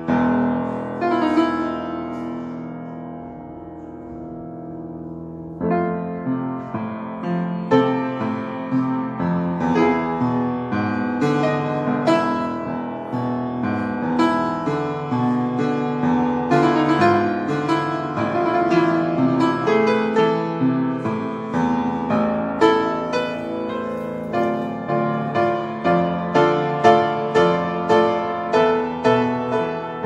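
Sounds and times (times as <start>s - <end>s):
upright piano playing: 0.0s - 30.0s.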